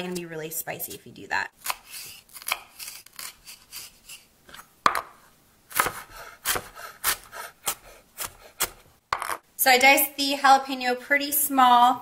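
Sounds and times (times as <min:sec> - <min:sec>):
knife chopping on wooden board: 0:04.8 - 0:09.4.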